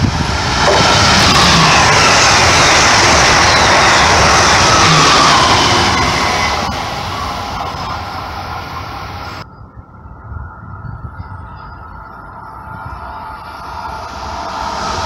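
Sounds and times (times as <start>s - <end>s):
train passing at speed: 0.0s - 9.4s, 12.4s - 15.0s
steady background noise: 0.0s - 15.0s.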